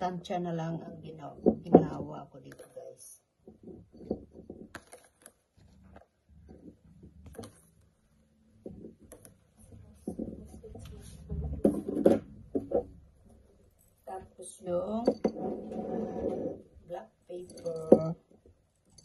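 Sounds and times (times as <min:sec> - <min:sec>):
garlic tapping in glass bottle: 0:17.4 - 0:18.2.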